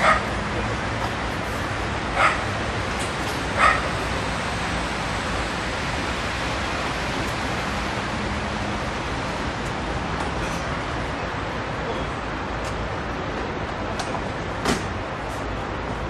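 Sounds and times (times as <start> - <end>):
dog barking: 0.0 - 0.3, 2.2 - 2.5, 3.6 - 3.9
city background hiss: 0.0 - 16.0.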